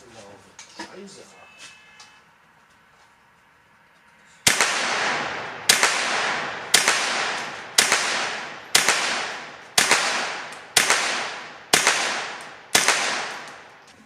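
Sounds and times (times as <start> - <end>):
rifle shots echoing: 4.4 - 13.8.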